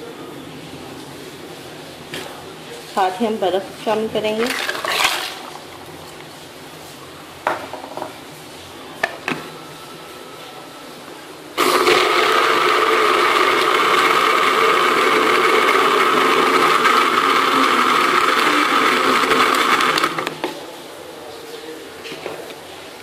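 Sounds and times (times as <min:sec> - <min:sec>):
blender running: 0:11.6 - 0:20.4.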